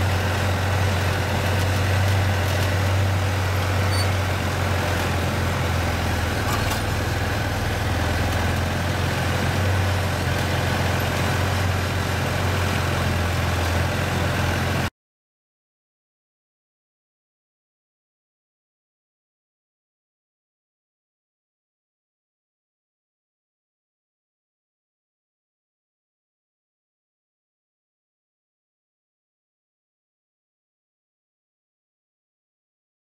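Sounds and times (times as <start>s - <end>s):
tractor diesel engine droning: 0.0s - 14.9s.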